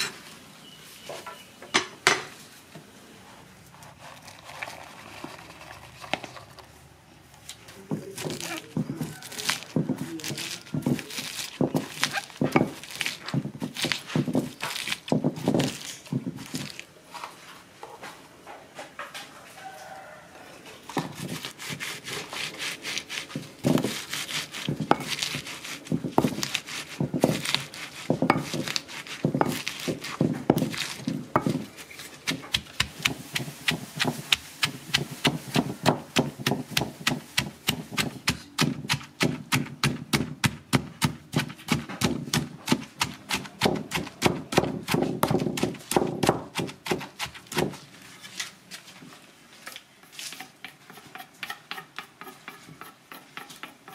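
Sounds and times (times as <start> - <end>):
pestle pounding in stone mortar: 7.9 - 16.8, 20.9 - 47.8, 50.3 - 53.9.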